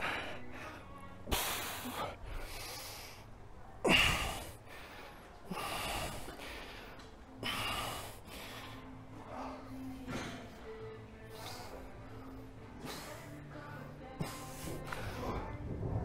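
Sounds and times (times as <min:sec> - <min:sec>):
man breathing forcefully: 0:00.0 - 0:10.6.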